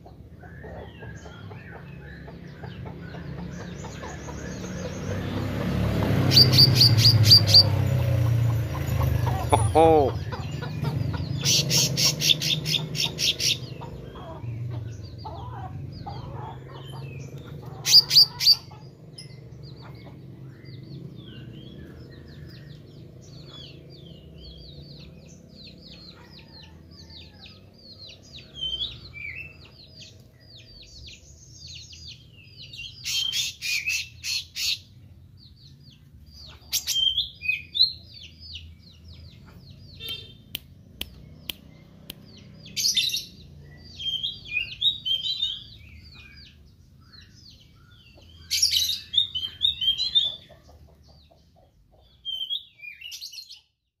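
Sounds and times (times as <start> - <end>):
rapid twittering birdsong: 0.0 - 54.0
songbird chirping: 0.0 - 54.0
sharp clicks: 40.0 - 42.4.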